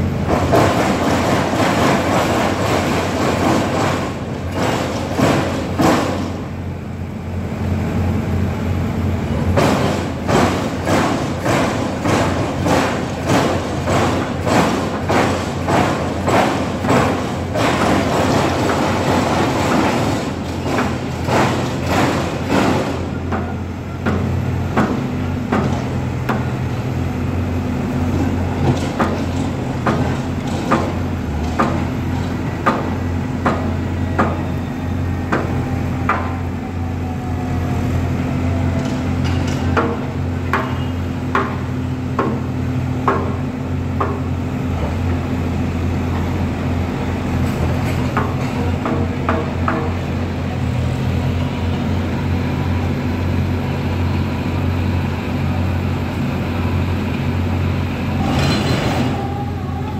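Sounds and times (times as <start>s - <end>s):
diesel engines of heavy machinery: 0.0s - 59.9s.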